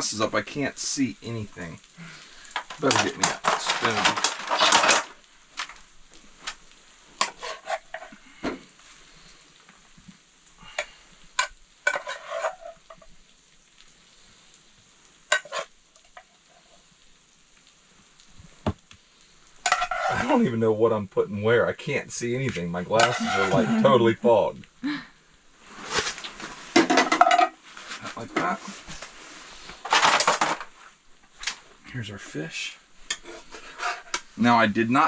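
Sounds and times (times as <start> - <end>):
food sizzling: 0.0 - 35.0
spoon scraping frying pan: 7.2 - 8.2, 10.8 - 13.1, 15.3 - 16.3, 19.6 - 20.3, 23.0 - 24.0, 33.0 - 34.4
clinks against plates: 23.0 - 23.7, 26.8 - 27.6.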